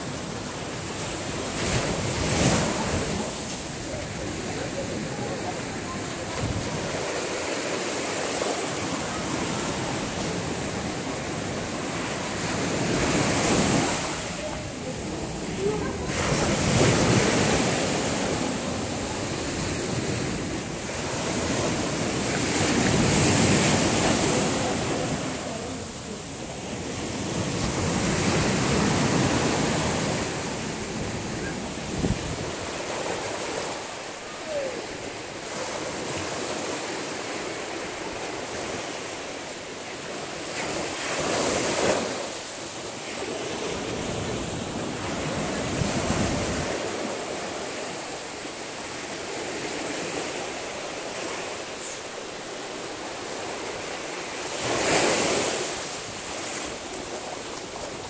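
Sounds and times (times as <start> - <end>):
waves breaking on a beach: 0.0 - 58.0.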